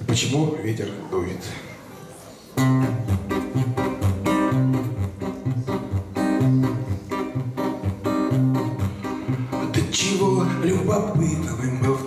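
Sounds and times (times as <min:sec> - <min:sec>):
acoustic guitar strumming: 0:02.6 - 0:12.0.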